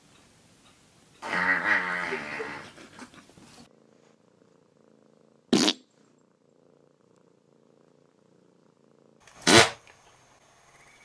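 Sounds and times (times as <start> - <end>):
cat purring: 1.2 - 9.3.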